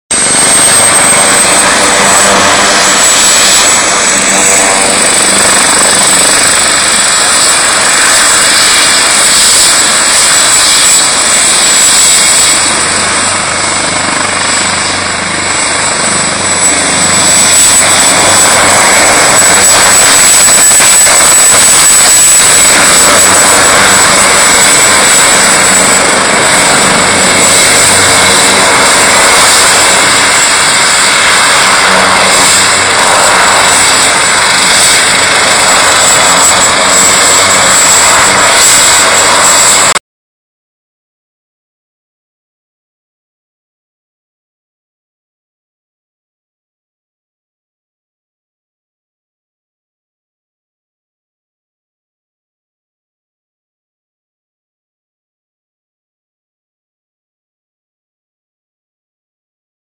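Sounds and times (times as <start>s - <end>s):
helicopter taxiing: 0.1s - 40.0s.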